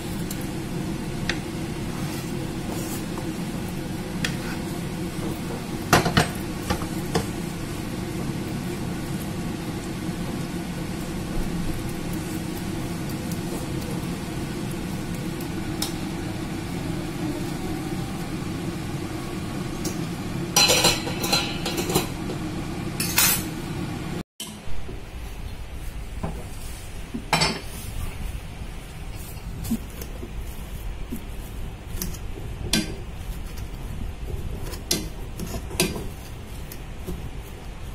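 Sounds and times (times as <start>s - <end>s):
steady low hum: 0.0s - 24.2s
utensils clinking against glass dish: 20.6s - 22.1s.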